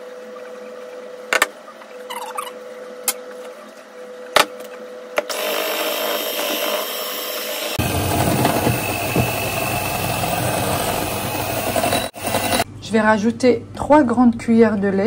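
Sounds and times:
electric hand mixer whirring: 5.3s - 12.6s.

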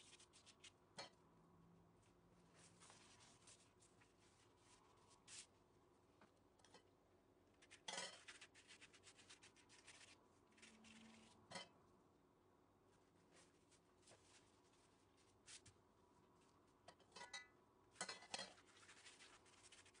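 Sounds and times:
pastry brush strokes: 0.0s - 1.0s, 2.4s - 5.6s, 7.6s - 11.6s, 13.0s - 15.8s, 18.3s - 20.0s.

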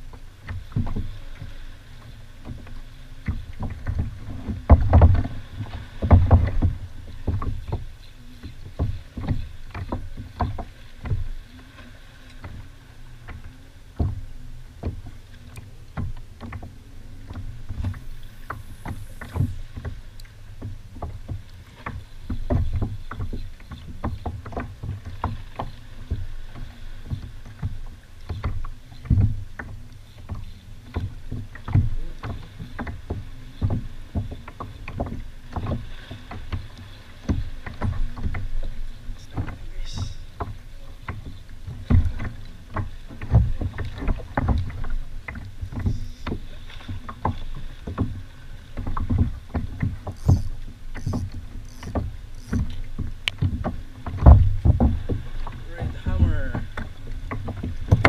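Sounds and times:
water knocking against kayak hull: 0.0s - 58.0s.

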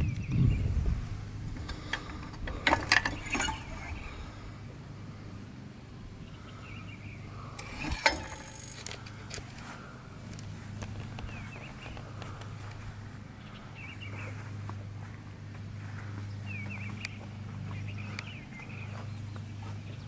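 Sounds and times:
metal cover clicking and rattling: 1.9s - 3.8s, 7.6s - 9.0s.

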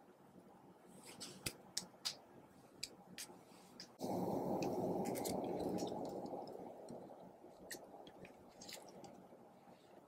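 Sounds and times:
slime rustling: 2.7s - 10.0s.

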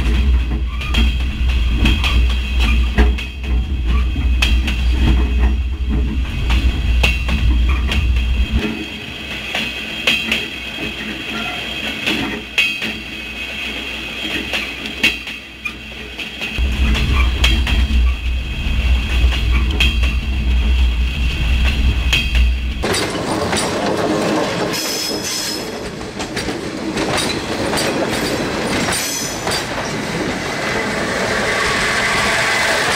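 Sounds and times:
train wheels rumbling on rail: 0.0s - 32.9s
wheels knocking on rail joints: 21.6s - 29.9s.

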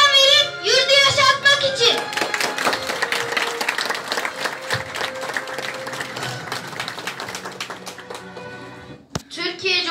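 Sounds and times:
background music: 0.0s - 9.9s
audience applauding: 1.9s - 8.8s.

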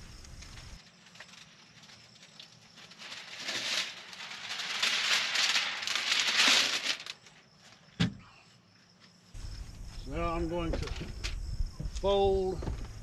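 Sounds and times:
plastic film crinkling: 0.8s - 7.4s.

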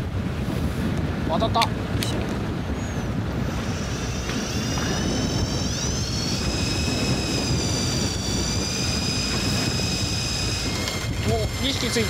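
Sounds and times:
low rumble of boat and wind: 0.0s - 12.0s
fishing reel motor whine: 2.6s - 12.0s.

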